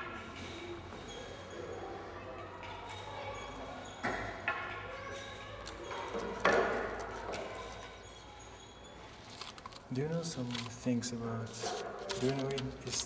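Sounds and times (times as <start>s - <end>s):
sharp knocks in echoing room: 4.0s - 7.7s.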